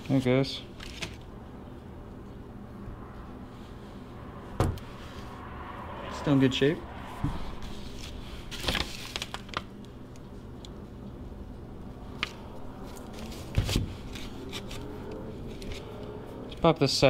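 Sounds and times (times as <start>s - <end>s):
low steady hum: 0.0s - 17.0s
low thump: 4.5s - 5.0s.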